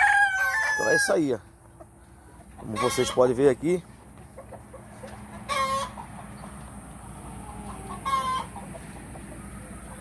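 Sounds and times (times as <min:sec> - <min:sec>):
hens calling: 0:00.0 - 0:10.0.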